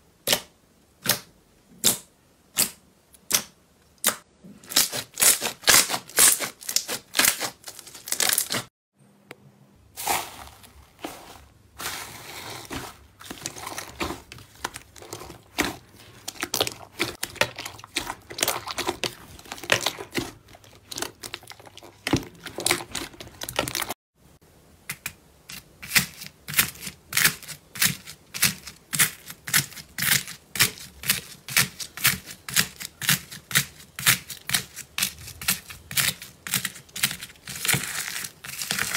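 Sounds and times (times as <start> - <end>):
foam beads crackling in slime: 10.0 - 20.0, 35.6 - 38.9
slime squishing with sticky pops: 13.3 - 23.9.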